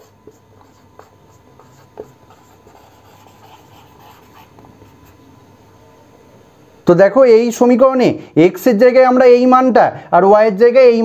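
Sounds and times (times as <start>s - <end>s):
marker scratching on whiteboard: 0.0s - 5.2s.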